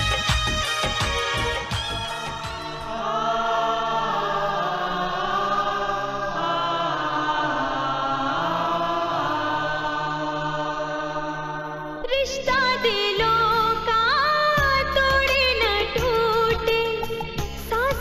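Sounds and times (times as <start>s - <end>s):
choir-like voices holding notes: 0.0s - 12.9s.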